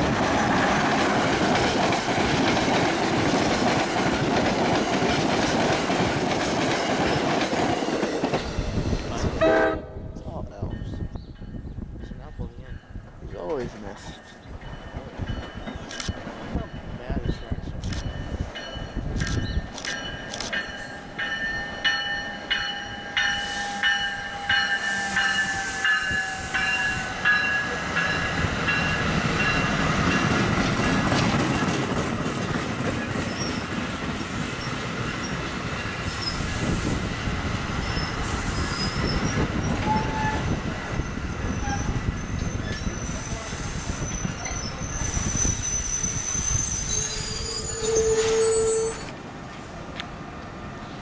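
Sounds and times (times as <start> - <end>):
train wheels rumbling on rail: 0.0 - 51.0
bell ringing: 18.0 - 29.7
high wheel squeal: 37.8 - 49.1.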